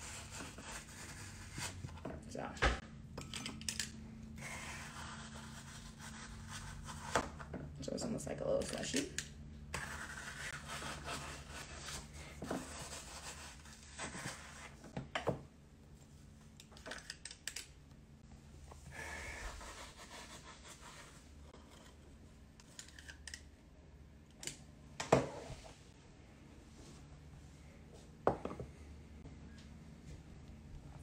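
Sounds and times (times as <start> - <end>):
metal scoop scraping sorbet: 9.8 - 14.8.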